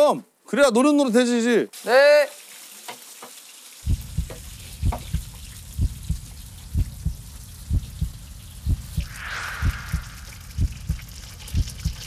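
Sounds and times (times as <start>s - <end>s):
dumplings sizzling in a pan: 1.7s - 9.2s
heartbeat-like double thump: 3.9s - 12.0s.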